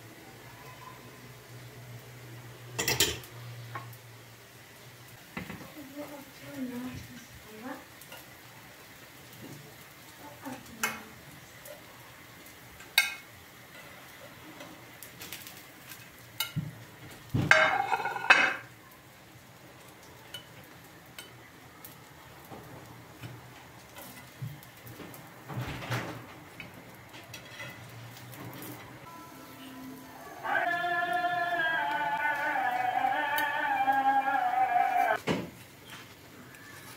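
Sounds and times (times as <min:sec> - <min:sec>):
faint frying sizzle: 0:00.0 - 0:36.9
metal tongs clicking on pan: 0:10.7 - 0:11.1, 0:21.2 - 0:21.4.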